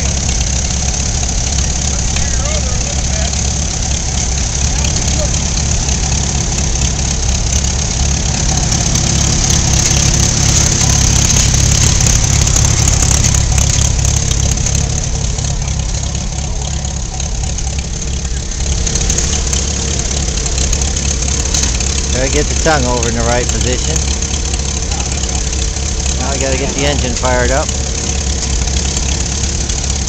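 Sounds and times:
tractor engine idling: 0.0 - 30.0.

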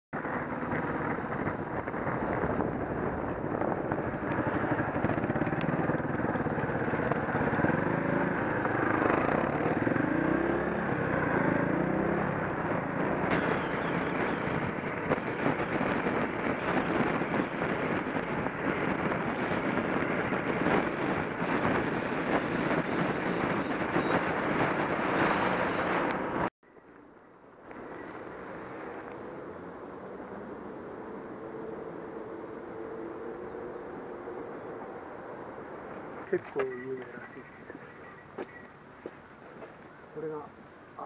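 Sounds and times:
wind and road noise: 0.1 - 41.0
motorcycle engine running: 0.2 - 25.0.

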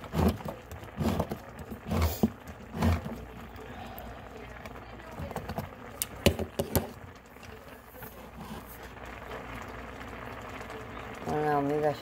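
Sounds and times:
cookware knocking and clacking: 6.2 - 7.0.

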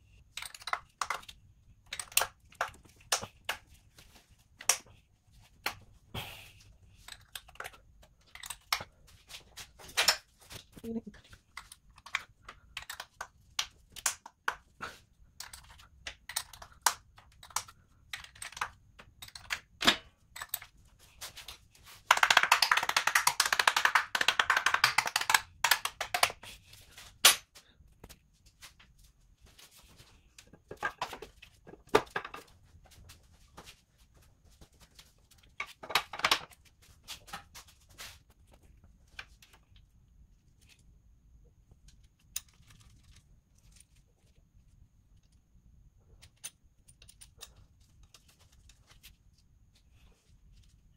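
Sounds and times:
tools clacking on metal parts: 0.3 - 3.6, 7.0 - 9.0, 11.4 - 14.6, 15.3 - 20.8, 46.2 - 48.7.

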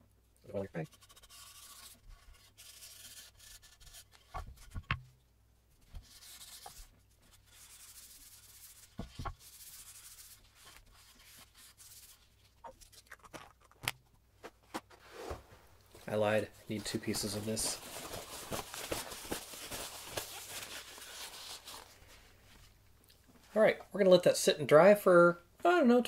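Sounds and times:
paper towel rubbing wooden board: 0.9 - 4.8, 5.9 - 12.3.

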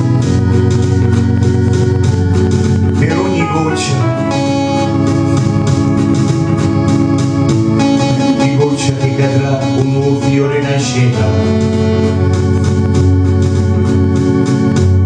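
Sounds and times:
electronic organ chords: 0.0 - 15.0
man singing into a microphone: 3.0 - 4.3, 8.3 - 12.0.

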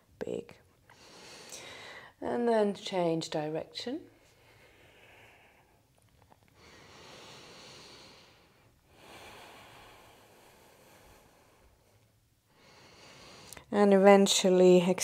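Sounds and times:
faint breathing: 0.9 - 2.2, 4.1 - 13.7.

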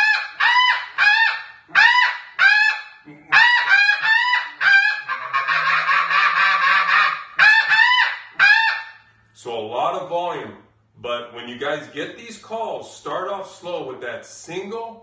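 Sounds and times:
goose call honking: 0.0 - 9.0.

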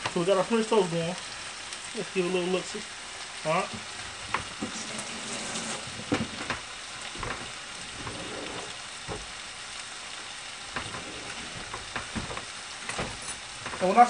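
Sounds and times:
food sizzling on griddle: 0.0 - 14.0.

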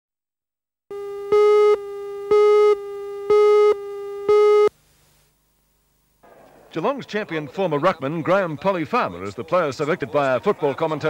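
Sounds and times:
electronic countdown beeps: 0.9 - 4.7.

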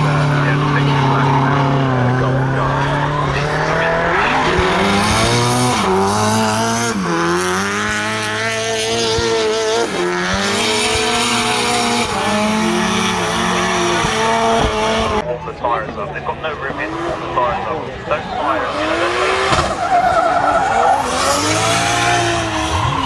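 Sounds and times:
car engine revving hard: 0.0 - 15.2, 16.6 - 23.0
tyres squealing: 18.2 - 23.0.

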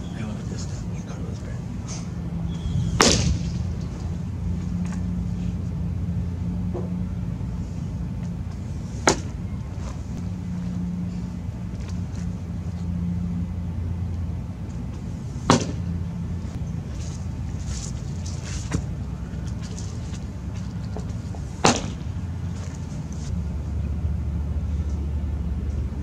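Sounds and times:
steady low hum: 0.0 - 26.0
baseball popping into leather mitt: 3.0 - 3.6.

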